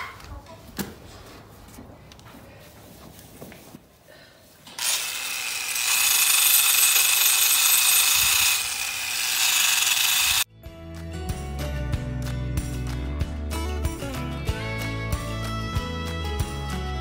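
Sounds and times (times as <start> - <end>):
grinder grinding hoof: 4.6 - 10.5
music: 10.5 - 17.0.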